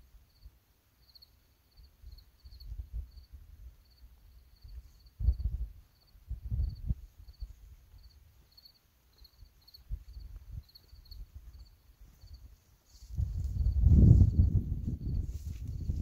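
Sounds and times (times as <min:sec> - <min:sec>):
cricket chirping: 0:00.2 - 0:12.5
footsteps through dry grass: 0:09.1 - 0:16.0.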